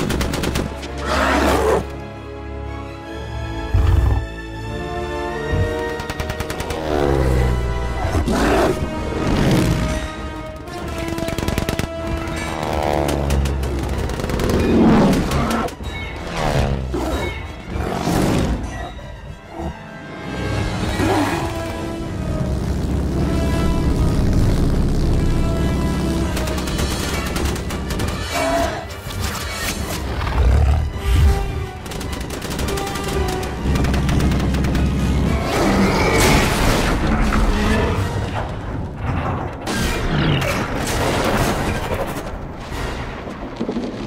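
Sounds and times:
machine guns firing: 0:00.0 - 0:00.8, 0:05.9 - 0:06.9, 0:10.6 - 0:15.6, 0:31.8 - 0:35.2
orchestral film score: 0:00.0 - 0:44.0.

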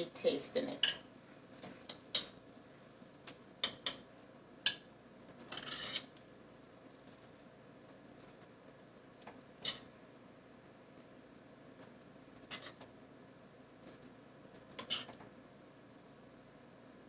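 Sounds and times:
utensil scraping: 0:05.5 - 0:06.1.

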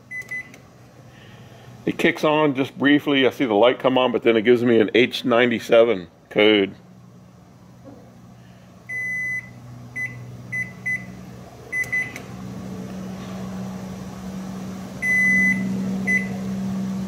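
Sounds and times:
steady low hum: 0:00.0 - 0:17.0
microwave keypad beeping: 0:00.1 - 0:00.6, 0:08.9 - 0:12.2, 0:15.0 - 0:16.4.

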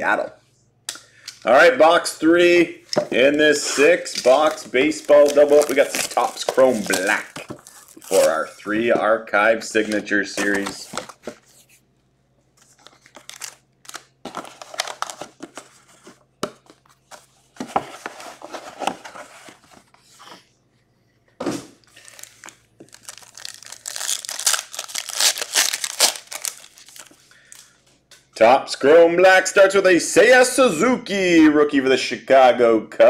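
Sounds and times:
foil pack tearing open: 0:04.2 - 0:08.4, 0:22.0 - 0:27.1.

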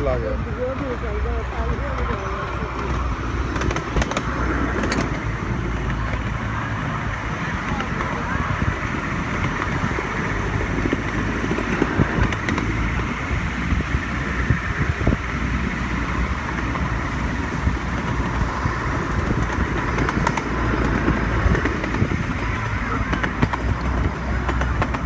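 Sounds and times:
train wheels rumbling on rails: 0:00.0 - 0:25.0
scattered clicks: 0:01.8 - 0:06.3.

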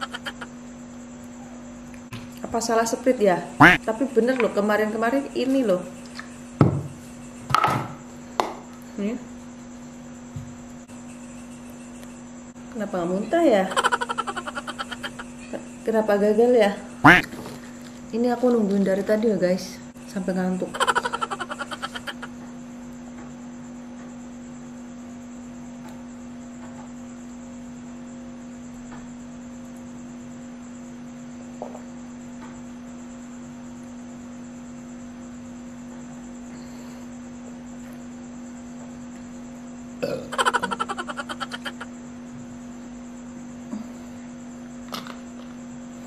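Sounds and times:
person gulping drink: 0:40.0 - 0:40.3
loud belch: 0:40.0 - 0:40.4.

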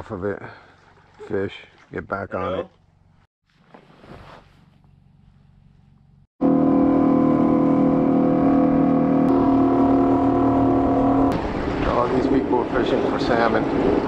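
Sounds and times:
outboard motor running: 0:06.4 - 0:13.6.

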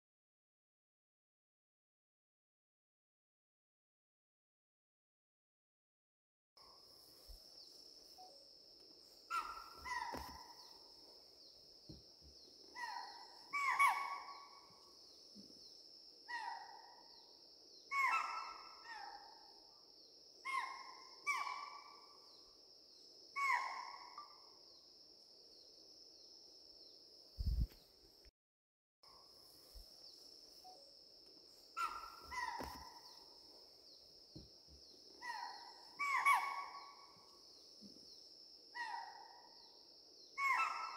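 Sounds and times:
animal cries falling in pitch: 0:09.3 - 0:10.5, 0:31.8 - 0:33.0.

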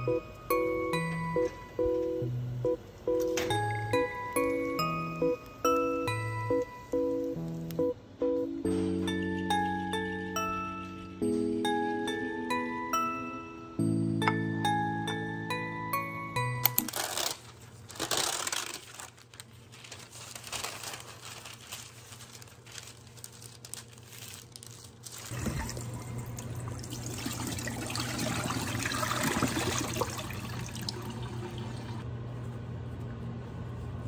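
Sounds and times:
parchment paper crinkling: 0:16.8 - 0:25.4
kitchen tap running: 0:25.3 - 0:32.0.

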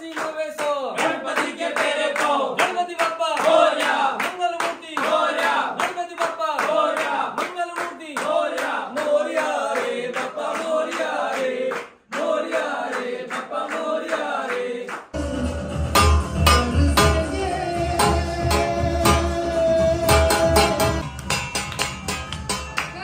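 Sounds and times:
hand-clapping: 0:00.0 - 0:15.2, 0:20.1 - 0:23.0
group chanting in unison: 0:00.6 - 0:15.2.

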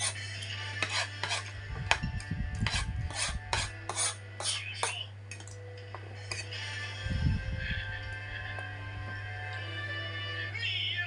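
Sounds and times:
scraping and rubbing close up: 0:00.8 - 0:02.0, 0:02.6 - 0:05.0.

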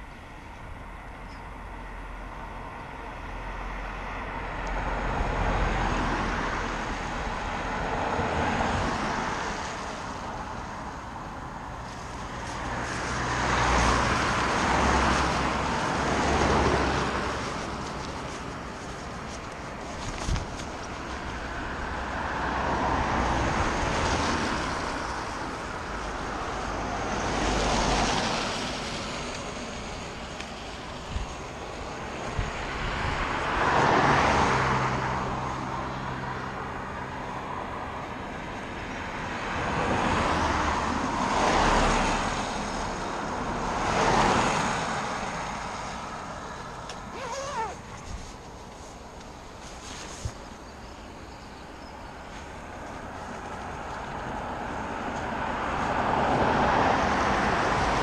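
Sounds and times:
tyres hissing on wet road: 0:01.6 - 0:58.0.

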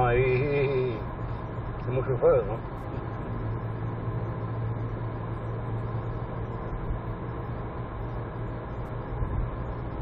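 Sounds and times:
car engine hum: 0:00.0 - 0:10.0
tyre road noise: 0:00.0 - 0:10.0.

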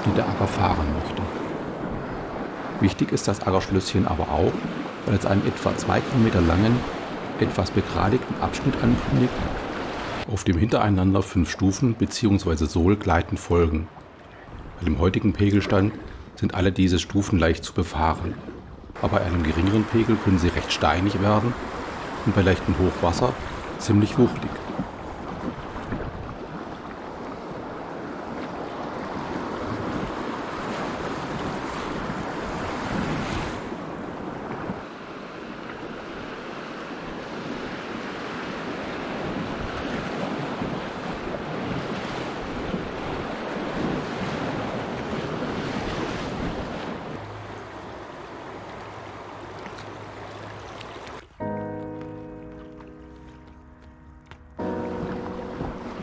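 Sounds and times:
river water rushing: 0:00.0 - 0:10.3, 0:18.9 - 0:51.4, 0:54.2 - 0:56.0
wind on microphone: 0:24.6 - 0:34.9, 0:55.0 - 0:56.0.

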